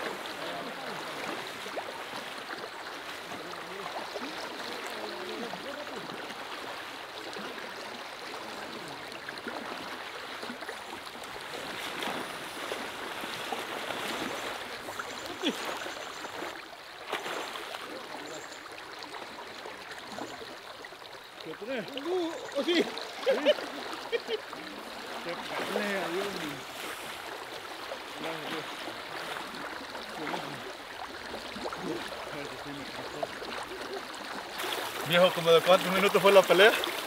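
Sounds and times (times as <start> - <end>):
river current rushing: 21.4 - 37.0.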